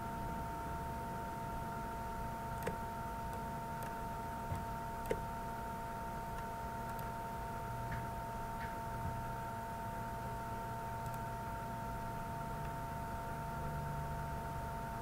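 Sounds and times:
electrical whine: 0:00.0 - 0:15.0
computer mouse clicks: 0:02.6 - 0:05.2, 0:06.4 - 0:07.1, 0:11.0 - 0:11.3.

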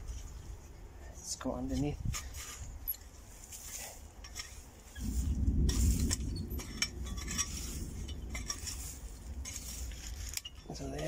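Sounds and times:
garden fork scraping soil: 0:01.4 - 0:11.0
low rumble: 0:05.0 - 0:10.9.

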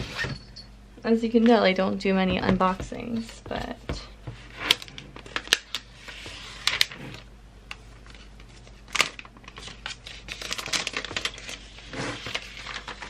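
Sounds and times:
paper and cardboard rustling: 0:08.0 - 0:13.0.

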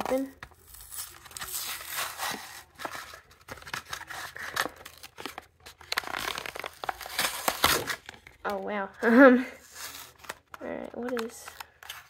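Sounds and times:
packaging being torn open: 0:00.0 - 0:08.5.

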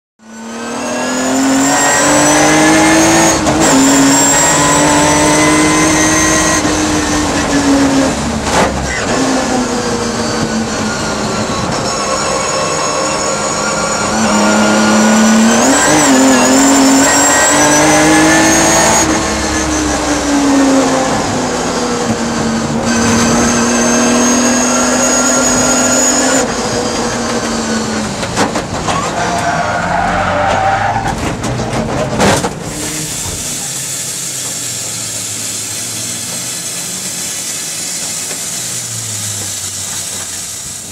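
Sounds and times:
race engine running hard: 0:01.2 - 0:28.8.

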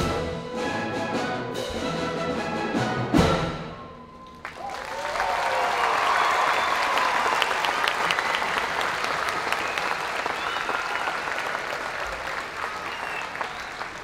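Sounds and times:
large audience applauding: 0:04.2 - 0:14.0.

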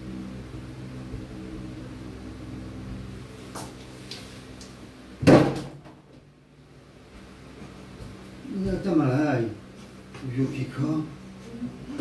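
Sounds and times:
steady low hum: 0:00.0 - 0:12.0
loud thump: 0:05.2 - 0:05.9.

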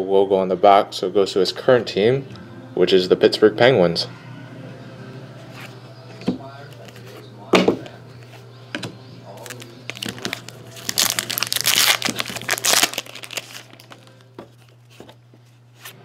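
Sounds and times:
foil wrapper crinkling: 0:09.4 - 0:15.1.

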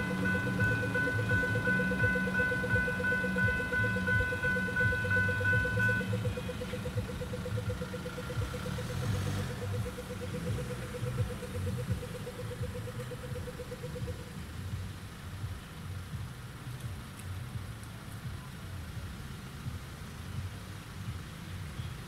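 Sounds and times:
level crossing bells ringing: 0:00.0 - 0:14.0
idling road traffic: 0:00.0 - 0:22.0.

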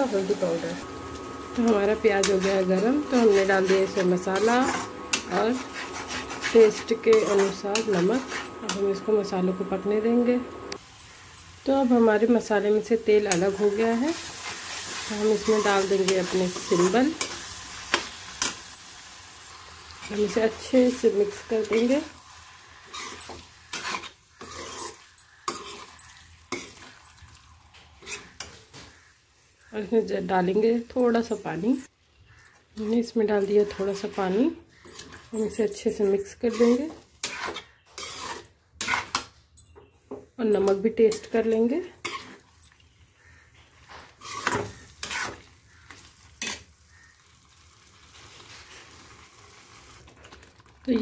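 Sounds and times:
spatula scraping a pan: 0:00.0 - 0:09.9, 0:13.2 - 0:18.7, 0:19.9 - 0:29.2, 0:32.3 - 0:39.3, 0:40.6 - 0:47.1
frying sizzle: 0:00.0 - 0:29.1, 0:40.7 - 0:51.0.

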